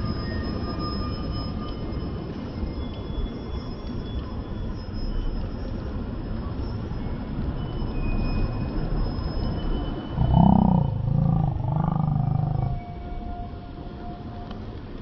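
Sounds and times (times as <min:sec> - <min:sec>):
city street rumble: 0:00.0 - 0:15.0
loud low-pitched drawn-out pulses: 0:10.2 - 0:12.9.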